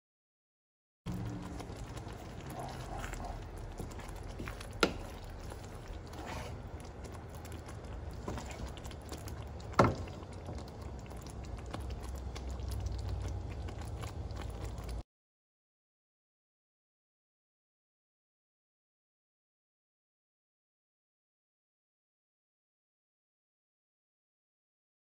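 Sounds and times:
faint scraping: 1.1 - 6.9
low steady rumble: 1.1 - 15.0
spoon stirring thick mixture: 1.1 - 15.0.

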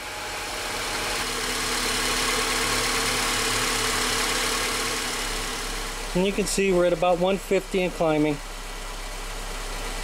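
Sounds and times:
car engine idling: 0.0 - 10.0.

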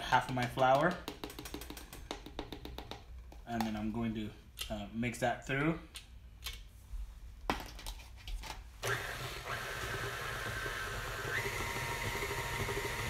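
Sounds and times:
stand mixer whirring: 8.8 - 13.0.

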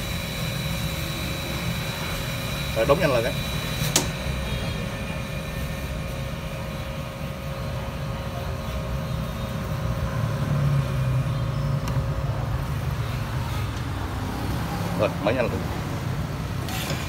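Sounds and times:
pump motor hum: 0.0 - 17.0
low traffic-like rumble: 4.3 - 16.8.

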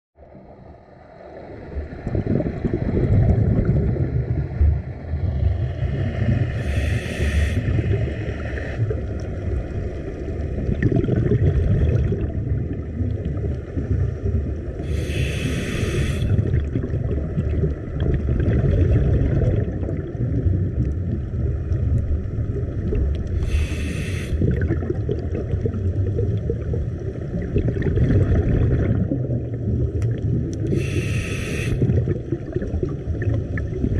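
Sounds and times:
underwater bubbling rumble: 0.2 - 33.9
hissing breath through regulator: 6.4 - 8.8, 14.8 - 16.4, 23.3 - 24.6, 30.7 - 31.9.

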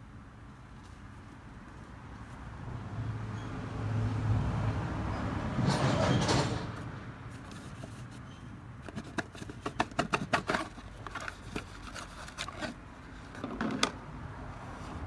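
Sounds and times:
handling clicks and scrapes: 5.6 - 14.0.

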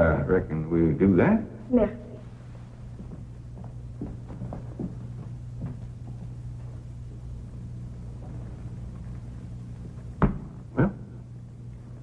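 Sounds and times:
steady low hum: 0.0 - 12.0
soft footsteps: 2.2 - 10.6.

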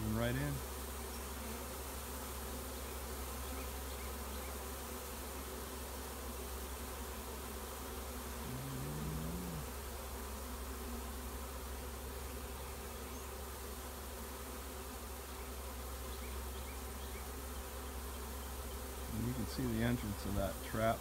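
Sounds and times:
bees buzzing: 0.0 - 21.0
low loud hum: 8.4 - 9.8.

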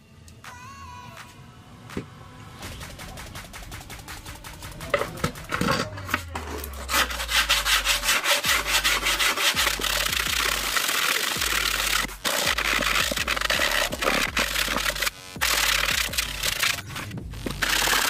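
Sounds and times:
sandpaper rubbing on wood: 4.7 - 18.0.

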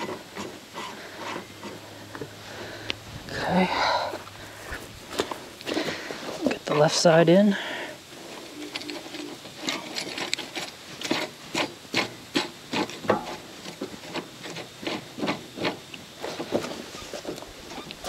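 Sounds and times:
small metal scrapes: 0.0 - 2.7, 8.1 - 18.0.

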